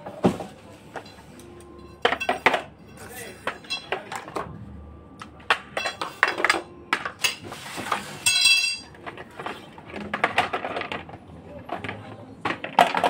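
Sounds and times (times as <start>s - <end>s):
metal and plastic parts clinking: 2.0s - 4.4s, 5.8s - 7.4s, 8.2s - 13.0s.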